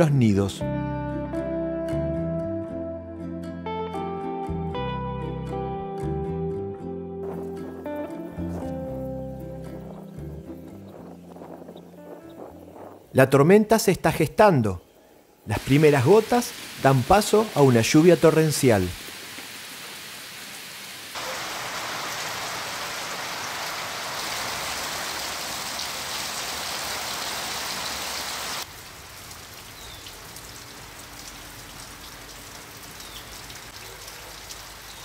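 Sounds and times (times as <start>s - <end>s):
rain on trees and foliage: 15.4s - 35.0s.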